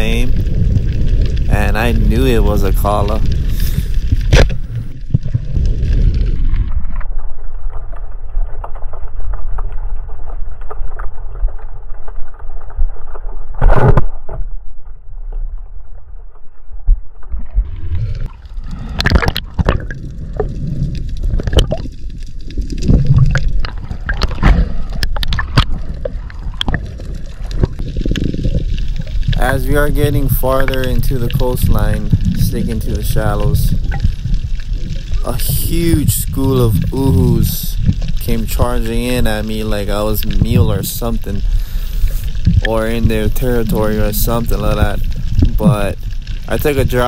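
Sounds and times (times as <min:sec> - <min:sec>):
muffled underwater water noise: 0:00.0 - 0:47.0
water splashing: 0:17.0 - 0:47.0.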